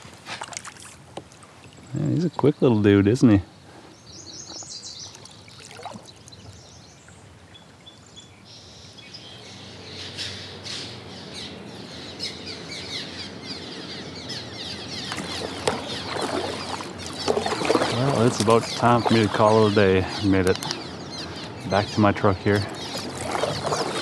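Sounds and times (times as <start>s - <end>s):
paddle splashes: 0.0s - 1.8s, 5.0s - 6.5s, 14.9s - 20.7s, 22.5s - 24.0s
swallows chirping: 3.5s - 24.0s.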